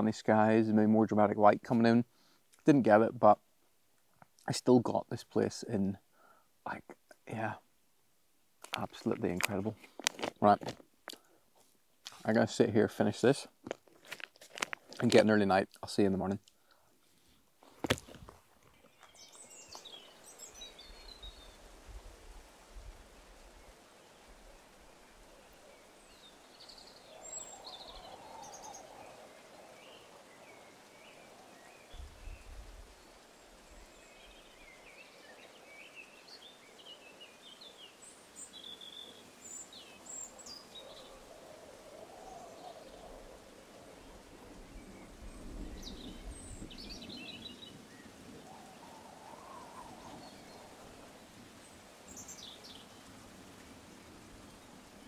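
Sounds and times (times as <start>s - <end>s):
outdoor ambience hiss: 0.0s - 55.0s
birds chirping and trilling: 18.6s - 21.7s, 24.8s - 53.2s.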